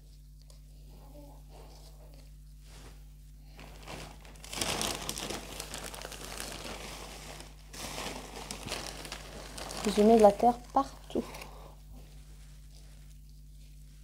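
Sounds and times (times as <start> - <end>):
plastic bag crinkling: 3.5 - 11.6.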